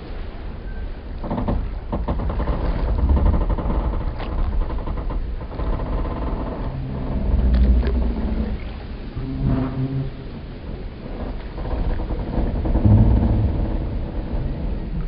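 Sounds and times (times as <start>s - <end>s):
wooden boats creaking: 0.0s - 15.0s
low rumble: 1.6s - 15.0s
sharp knocks: 12.8s - 14.0s.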